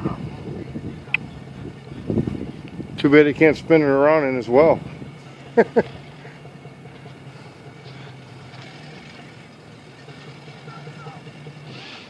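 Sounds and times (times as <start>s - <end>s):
motorboat engine idling: 0.0s - 12.0s.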